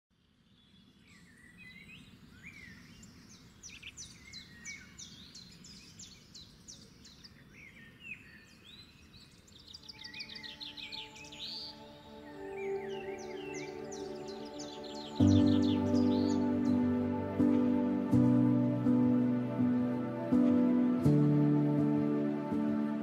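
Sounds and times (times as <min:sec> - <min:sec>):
birds calling: 0:02.4 - 0:23.0
soft music: 0:09.8 - 0:23.0.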